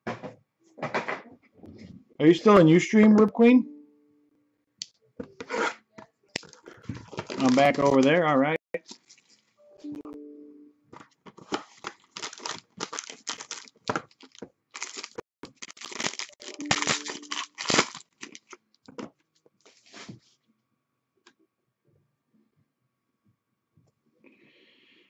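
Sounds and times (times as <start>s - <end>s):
wrapping tearing and crinkling: 6.4s - 9.6s, 11.4s - 18.9s.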